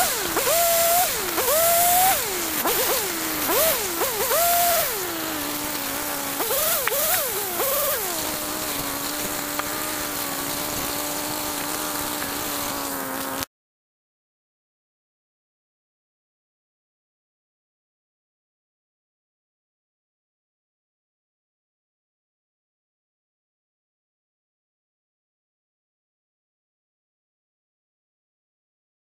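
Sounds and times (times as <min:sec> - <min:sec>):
small engine revving and idling: 0:00.0 - 0:13.5.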